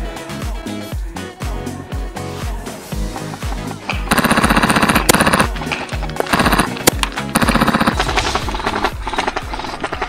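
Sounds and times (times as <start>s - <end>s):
electronic music with kick drum: 0.0s - 8.6s
airsoft gun full-auto bursts: 4.0s - 5.6s, 6.2s - 9.3s.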